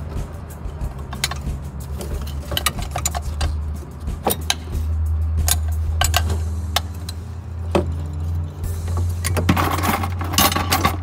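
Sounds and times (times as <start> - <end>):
steady low hum: 0.0 - 11.0
metallic clinks and taps: 0.9 - 8.2.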